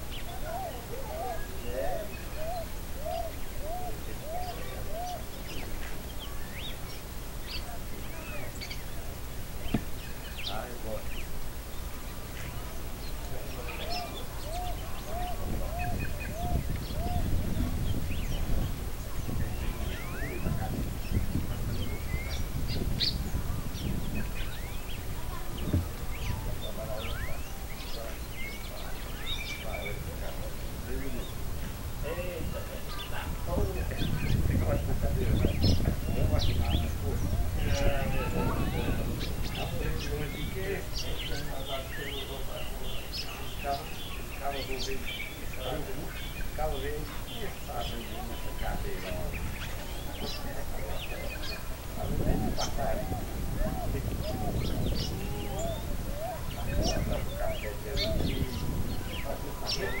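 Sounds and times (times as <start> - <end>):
bird low arched call: 0.0 - 60.0
birds chirping and calling: 0.0 - 60.0.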